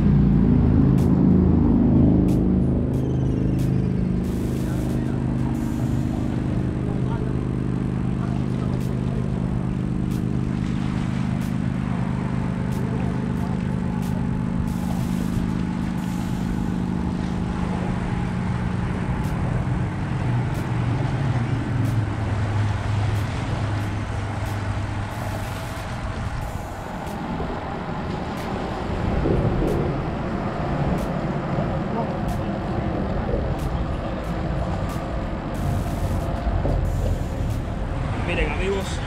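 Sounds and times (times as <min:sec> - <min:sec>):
vehicle engine humming: 0:00.0 - 0:39.0
wash of noise: 0:00.0 - 0:39.0.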